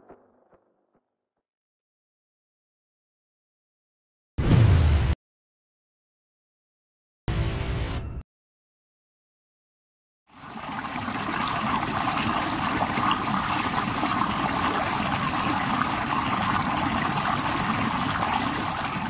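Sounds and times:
running water rushing: 10.3 - 19.0.

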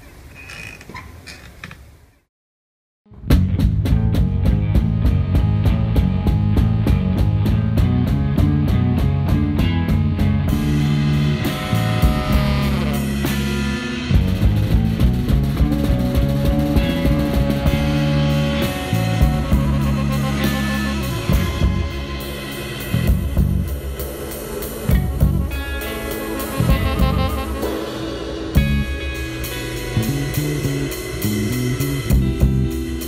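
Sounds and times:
drum kit beating: 3.1 - 33.0
electric bass line: 3.1 - 33.0
rock band playing: 3.1 - 33.0
electric guitar: 3.2 - 33.0
long held note: 11.0 - 14.1, 17.2 - 23.3, 25.0 - 29.1.

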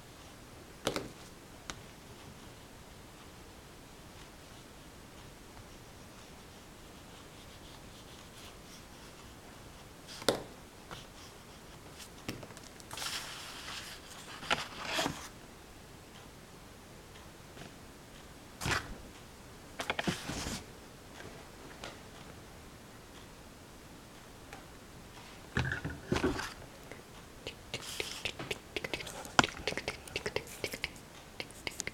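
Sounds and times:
faint steady hiss: 0.0 - 31.9
paper rustling: 19.8 - 20.7.

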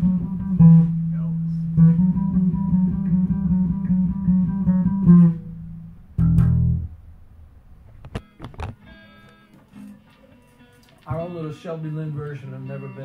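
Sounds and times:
electric bass and guitar low notes: 0.0 - 10.1.

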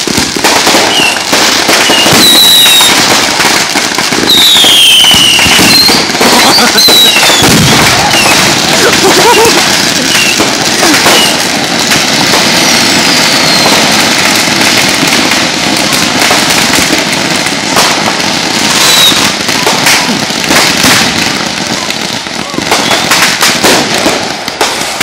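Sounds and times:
firecrackers crackling and popping: 0.0 - 25.0
firework whistles falling in pitch: 0.6 - 3.2, 4.1 - 8.5, 10.1 - 11.4, 12.9 - 14.1, 18.6 - 20.0, 22.6 - 23.4.

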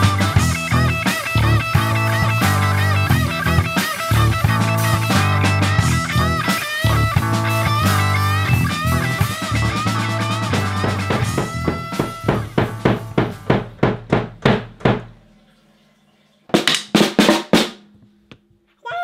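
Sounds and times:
drum hits: 0.0 - 15.3, 16.5 - 18.1
snare drum strikes: 10.4 - 15.2, 16.5 - 17.9.

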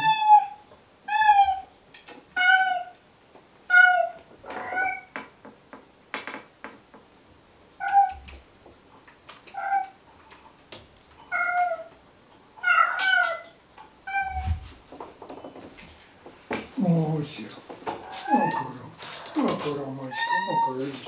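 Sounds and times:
cat meowing: 0.0 - 1.7, 2.3 - 3.0, 3.7 - 5.1, 7.8 - 8.3, 9.5 - 10.0, 11.3 - 11.9, 12.6 - 14.7, 18.0 - 21.0.

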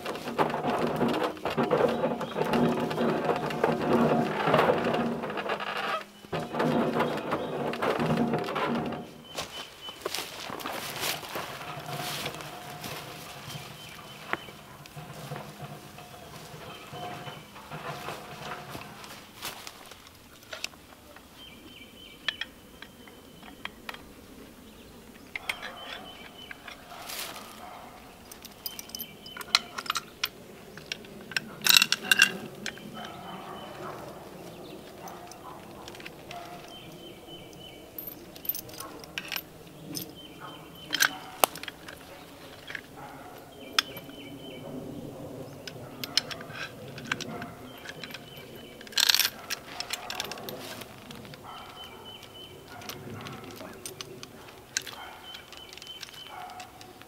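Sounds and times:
steel chain clinking and rattling: 10.2 - 20.7, 25.3 - 57.0.

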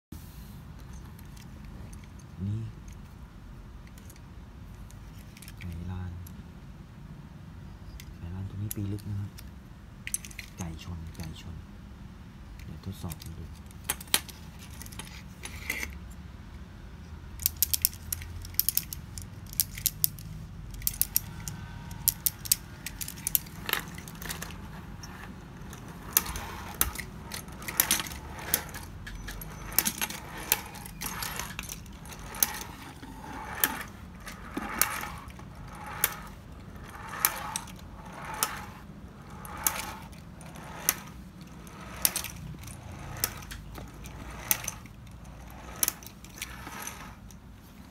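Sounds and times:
tin toy clattering clicks: 17.4 - 24.6
clockwork toy mechanism running: 17.4 - 47.4.

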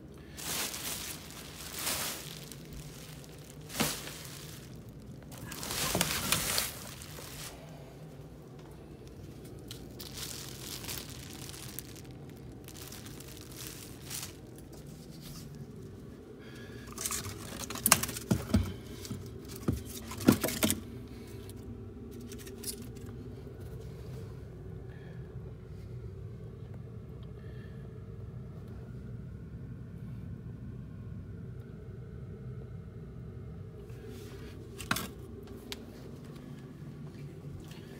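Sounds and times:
plastic trash bag rustling: 0.0 - 16.0, 16.9 - 20.8
low steady hum: 0.0 - 37.9.

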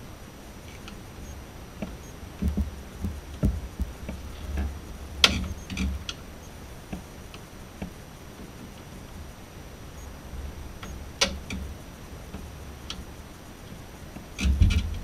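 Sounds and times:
light knocks and clicks: 1.8 - 6.0.

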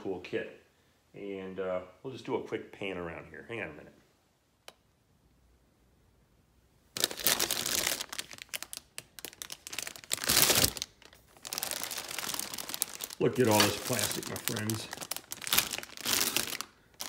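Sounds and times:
plastic bags crinkling: 6.9 - 17.0.

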